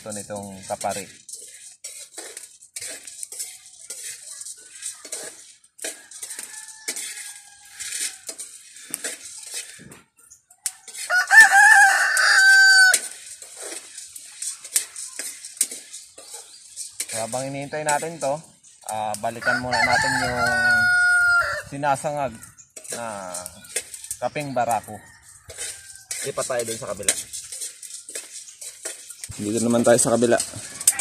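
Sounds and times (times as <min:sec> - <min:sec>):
small clicks and crackles: 0:00.0 - 0:19.4, 0:22.4 - 0:31.0
rooster crowing: 0:06.0 - 0:08.4, 0:10.6 - 0:13.1, 0:19.4 - 0:22.4, 0:24.0 - 0:26.5, 0:30.4 - 0:31.0.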